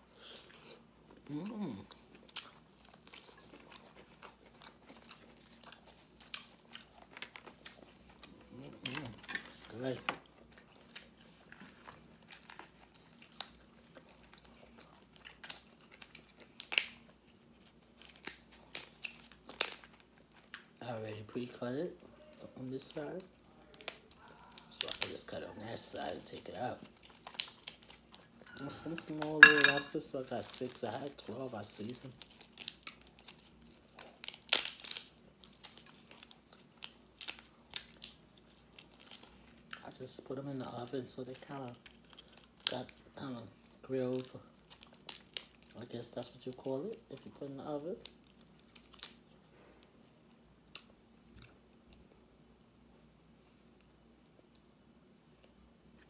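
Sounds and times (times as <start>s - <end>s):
food crinkling and crackling: 0.0s - 56.0s.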